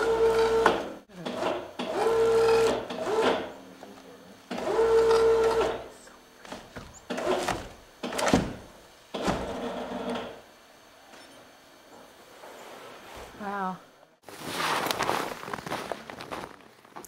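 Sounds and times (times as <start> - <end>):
power tool motor whining: 0.0 - 3.6, 4.5 - 10.5.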